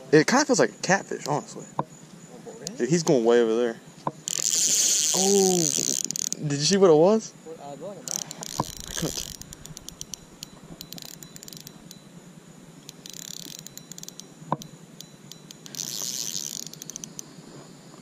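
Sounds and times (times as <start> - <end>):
sharp tick: 1.1 - 1.9, 8.1 - 12.0, 12.8 - 17.3
fishing reel drag clicking: 4.2 - 6.8, 8.0 - 12.1, 12.8 - 17.4.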